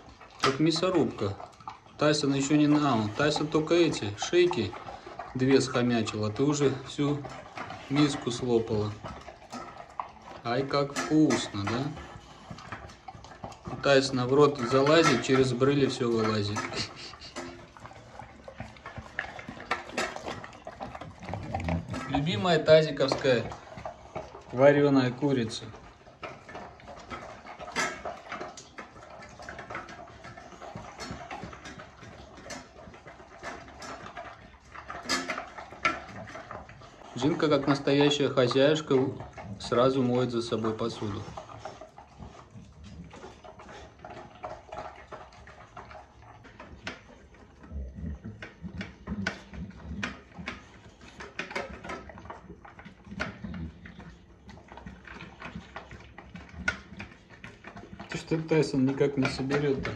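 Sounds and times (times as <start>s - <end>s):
clicks against metal bowls: 0.0s - 41.6s, 54.7s - 59.9s
dogs chewing and slurping: 0.0s - 59.9s.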